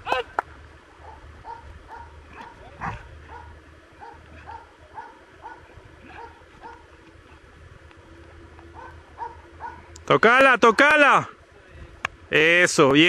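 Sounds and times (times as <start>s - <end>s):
dog barking: 1.0s - 6.9s, 8.8s - 9.8s.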